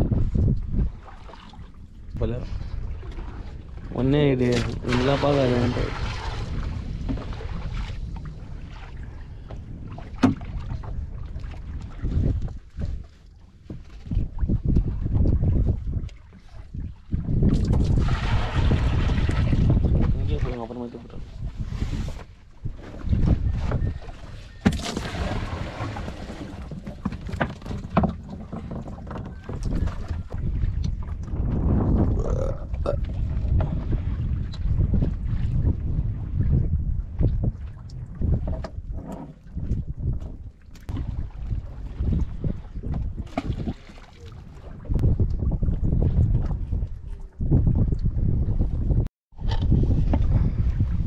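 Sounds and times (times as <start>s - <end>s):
water noise around boat: 0.0s - 51.0s
wind rumbling on microphone: 0.0s - 51.0s.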